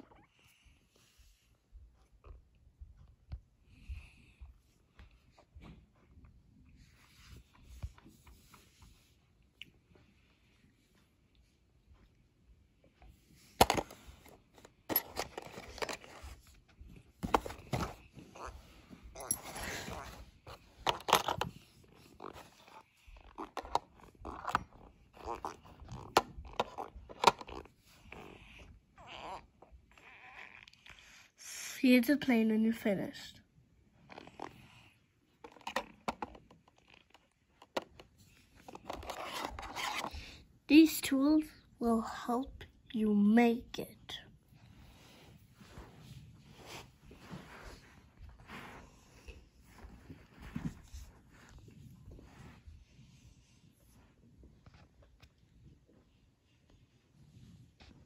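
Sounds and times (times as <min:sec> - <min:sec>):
toy handling rustle: 0:13.6 - 0:27.7, 0:35.3 - 0:41.2
metal tools scraping and clattering: 0:19.2 - 0:20.1.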